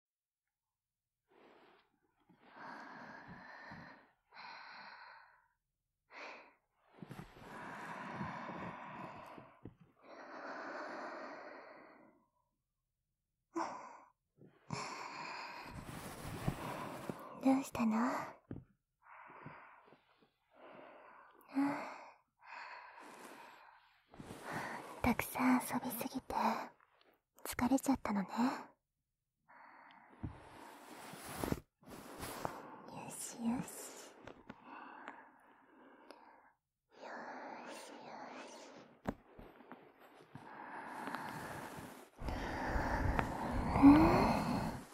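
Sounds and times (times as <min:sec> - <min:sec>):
woman breathing and sighing: 0:01.3 - 0:12.4, 0:13.5 - 0:27.2, 0:29.4 - 0:44.9.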